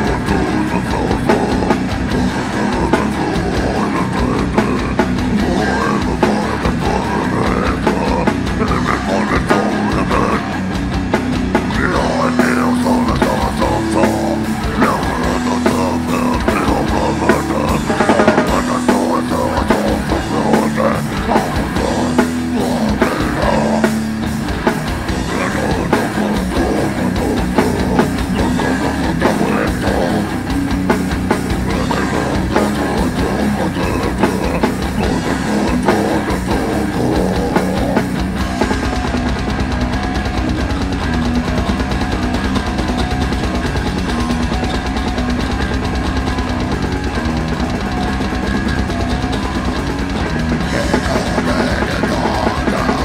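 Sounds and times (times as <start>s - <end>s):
singer shouting: 0.0s - 10.7s, 11.7s - 39.2s, 50.3s - 53.0s
distorted electric guitars: 0.0s - 53.0s
drum kit pounding: 0.0s - 53.0s.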